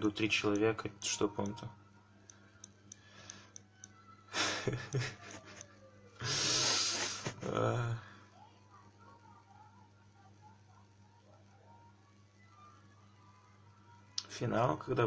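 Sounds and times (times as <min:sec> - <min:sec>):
faint clicks: 0:02.2 - 0:04.0
man laughing breathily: 0:04.3 - 0:05.6, 0:06.2 - 0:07.7.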